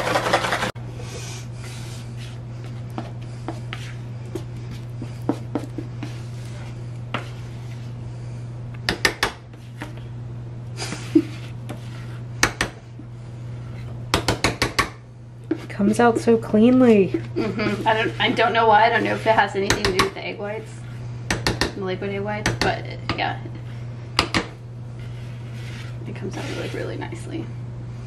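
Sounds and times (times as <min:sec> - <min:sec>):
steady low hum: 0:00.0 - 0:28.0
spatula scraping batter from bowl: 0:17.1 - 0:20.9, 0:25.0 - 0:27.0.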